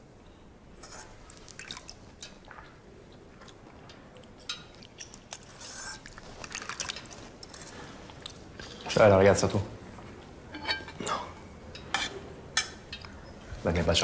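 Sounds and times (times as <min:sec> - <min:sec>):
low steady hiss: 0:00.0 - 0:14.0
small wet clicks: 0:01.0 - 0:09.0.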